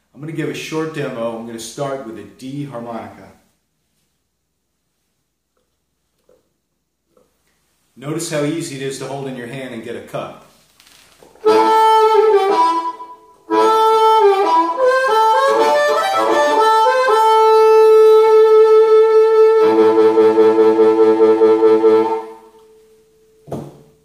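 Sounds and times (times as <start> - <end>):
amplified blues harmonica: 11.4 - 22.7.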